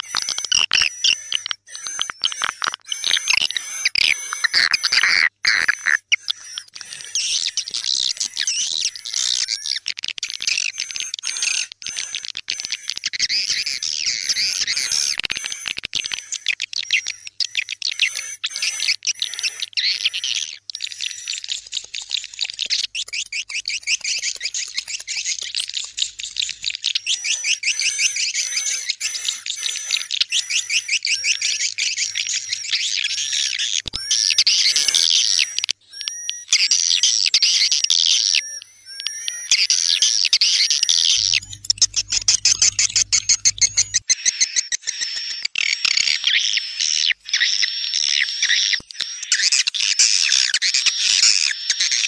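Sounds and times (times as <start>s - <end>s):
rapid bird twittering: 0.0s - 52.0s
thin steady high tones: 41.1s - 44.0s.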